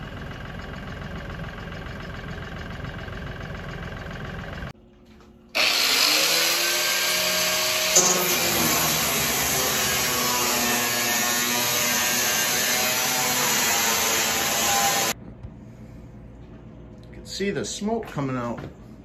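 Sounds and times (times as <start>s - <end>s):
tractor engine running: 0.0s - 4.8s
angle grinder cutting steel: 5.6s - 15.2s.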